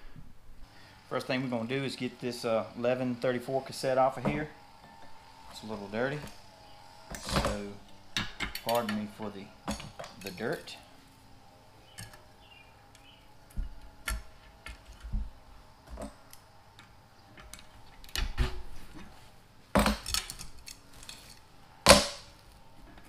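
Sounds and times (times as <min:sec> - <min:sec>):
metal bicycle tools clinking: 0:19.8 - 0:21.5.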